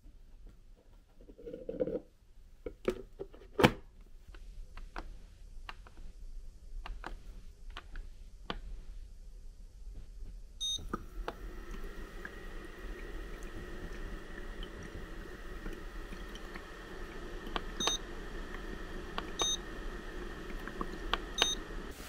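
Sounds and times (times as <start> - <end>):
faint steady hum: 0.0 - 22.0
diffuser beep: 10.6 - 11.0, 17.6 - 18.0, 19.2 - 19.7, 21.3 - 21.7.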